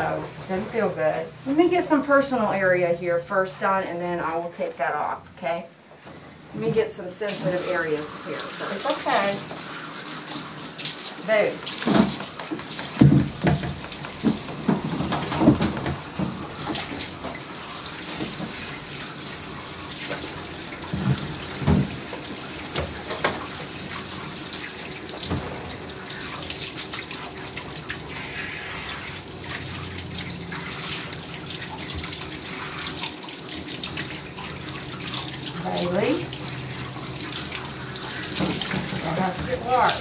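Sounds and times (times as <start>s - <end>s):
water spraying onto dog coat: 7.2s - 40.0s
knocks: 12.8s - 16.4s.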